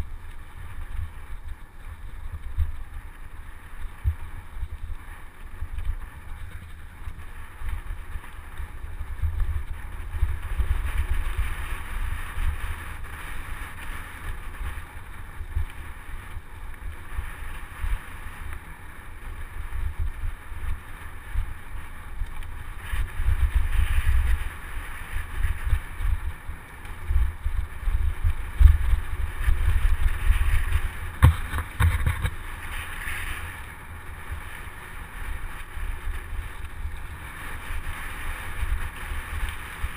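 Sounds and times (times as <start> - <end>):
tyres hissing on dirt trail: 0.0 - 39.9
wind buffeting microphone: 19.4 - 39.9.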